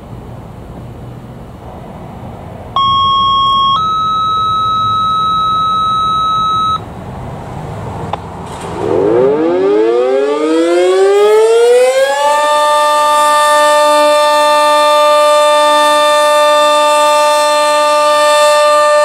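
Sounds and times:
two-tone beep signal: 2.8 - 6.8
warning siren winding up: 2.8 - 6.8, 8.8 - 19.0.

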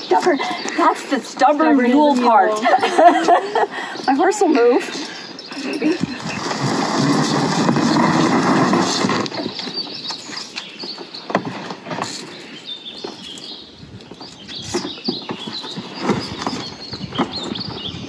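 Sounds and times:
small birds chirping: 0.0 - 18.0
leather panniers knocking and clicking: 5.4 - 17.9.

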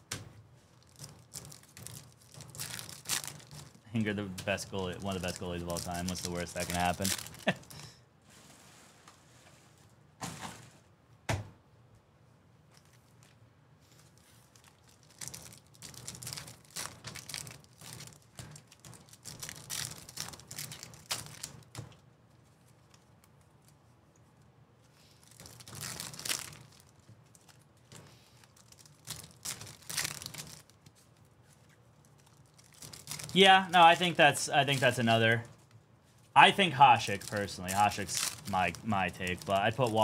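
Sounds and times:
wrappers tearing and crinkling: 0.8 - 8.0, 12.8 - 21.8, 25.0 - 35.7, 36.4 - 40.0.

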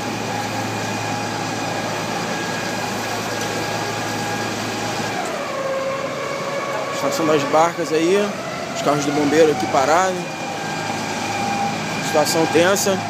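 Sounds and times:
fire truck engine droning: 0.0 - 13.0
street noise: 0.0 - 13.0.

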